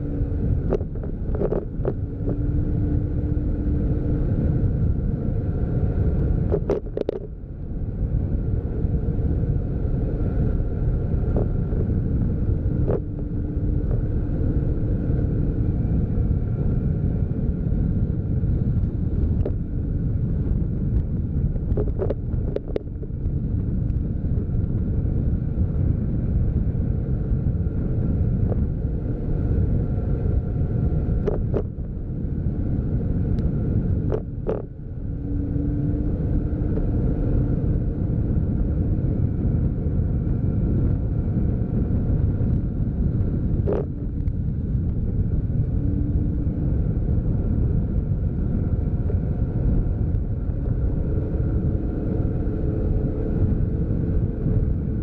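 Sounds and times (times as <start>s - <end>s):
road rumble: 0.0s - 55.0s
vehicle engine hum: 0.0s - 55.0s.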